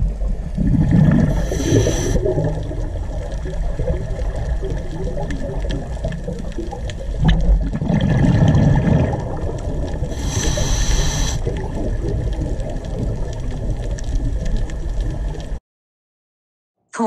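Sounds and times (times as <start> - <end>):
underwater rumble with gurgling: 0.0 - 15.6
brief hiss: 1.4 - 2.2, 10.2 - 11.4.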